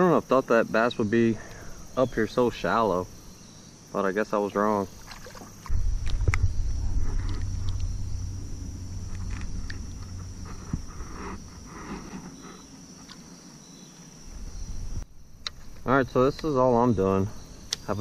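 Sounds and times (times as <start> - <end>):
high insect drone: 0.0 - 18.0
water splashing and sloshing: 4.8 - 12.4
low rumble: 5.7 - 12.8.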